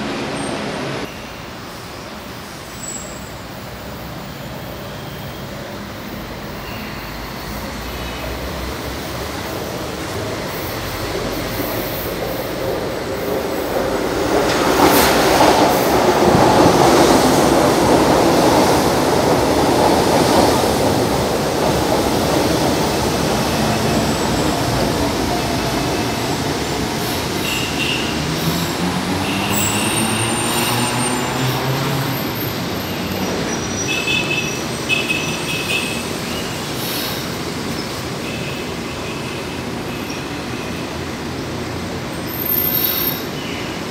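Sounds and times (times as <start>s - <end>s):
train braking to a stop: 0.1s - 43.9s
high brake squeals: 2.7s - 3.5s, 6.5s - 8.4s, 32.2s - 37.2s, 42.2s - 43.9s.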